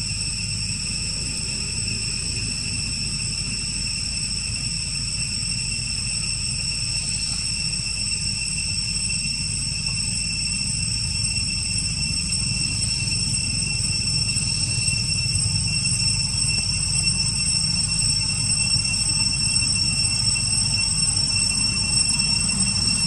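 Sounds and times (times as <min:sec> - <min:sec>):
high-pitched insect chirring: 0:00.0 - 0:23.0.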